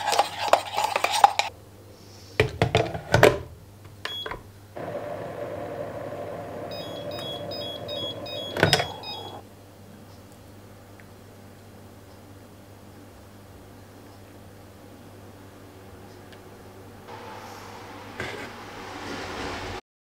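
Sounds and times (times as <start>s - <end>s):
coffee machine humming: 4.8s - 9.4s
electronic beeps: 6.6s - 9.4s.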